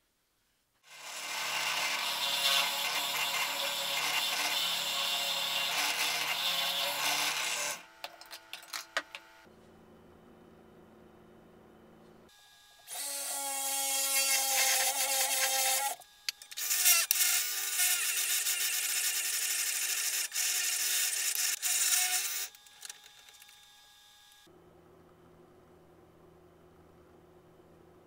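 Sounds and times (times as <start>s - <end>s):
drill press boring through plywood: 0.9s - 7.8s.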